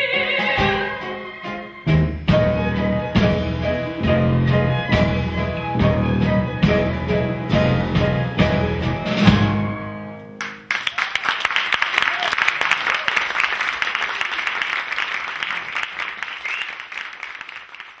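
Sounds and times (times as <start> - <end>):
audience applause: 10.4 - 18.0.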